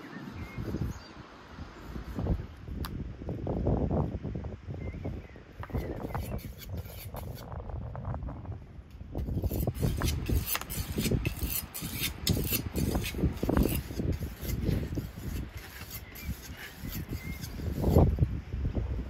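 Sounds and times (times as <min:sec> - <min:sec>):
knife cutting meat on wooden board: 0:15.4 - 0:17.6.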